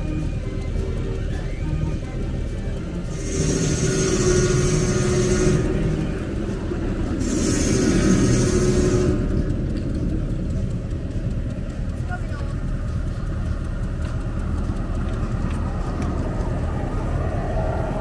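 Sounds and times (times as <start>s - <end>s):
engine running: 0.0s - 18.0s
hissing bursts: 2.5s - 11.3s.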